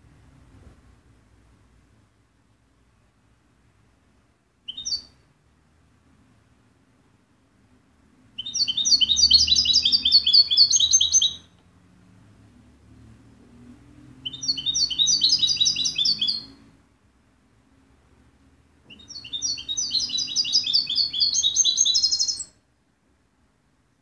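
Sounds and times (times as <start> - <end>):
goldfinch twittering: 14.3 - 16.5, 18.9 - 22.5.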